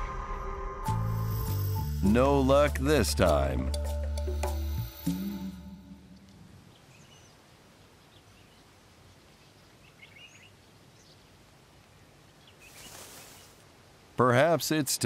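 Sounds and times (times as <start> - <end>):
quiet steady hiss: 4.6 - 15.0
faint bird chirps: 6.6 - 11.4.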